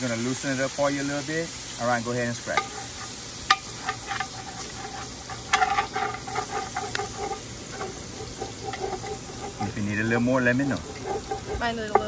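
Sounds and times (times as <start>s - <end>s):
water sizzling: 0.0s - 12.0s
metal spoon scraping pot: 2.4s - 12.0s.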